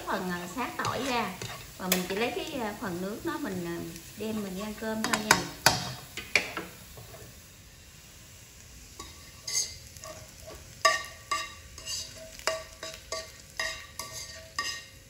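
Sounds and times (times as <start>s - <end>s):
garlic sizzling in oil: 0.0s - 15.0s
metal utensil clanking on wok: 0.1s - 2.2s, 5.0s - 7.2s, 9.0s - 15.0s.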